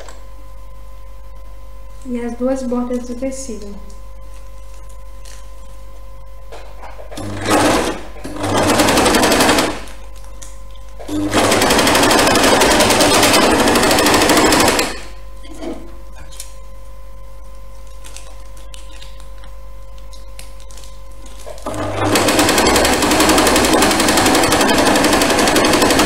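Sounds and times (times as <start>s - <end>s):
sewing machine stitching: 7.1s - 9.9s, 11.0s - 15.1s, 21.6s - 26.0s.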